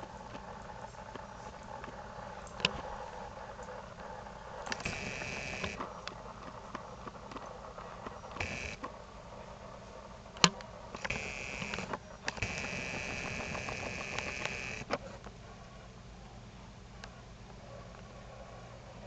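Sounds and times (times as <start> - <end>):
camcorder zoom motor whirring: 4.7 - 5.9, 8.3 - 8.9, 11.0 - 15.0.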